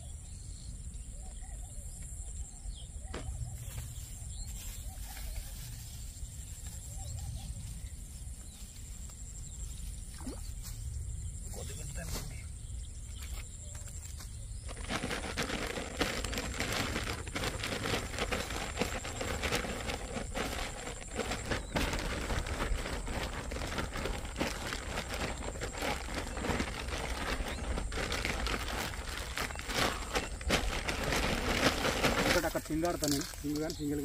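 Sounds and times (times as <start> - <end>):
plastic bag crinkling: 14.7 - 34.0.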